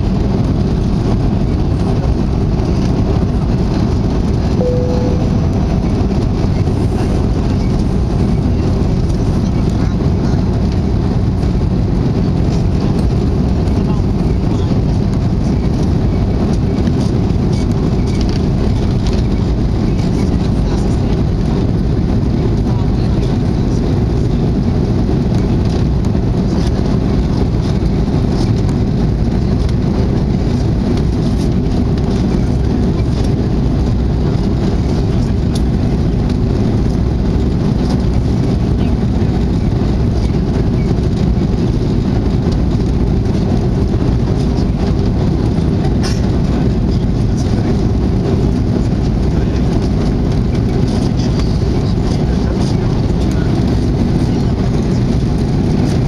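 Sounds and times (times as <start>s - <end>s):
jet engines roaring: 0.0s - 56.0s
air rushing over fuselage: 3.9s - 9.0s.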